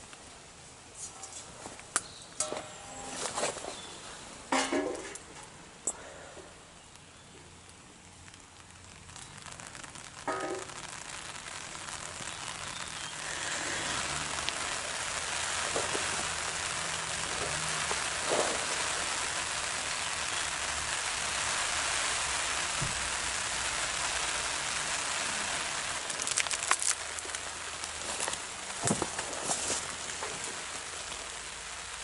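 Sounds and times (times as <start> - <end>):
food sizzling in a frying pan: 8.2 - 32.0.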